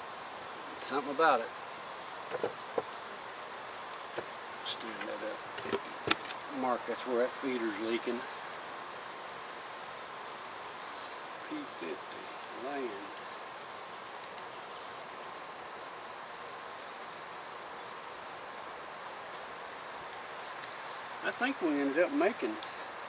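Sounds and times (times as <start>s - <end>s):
insects singing: 0.0s - 23.0s.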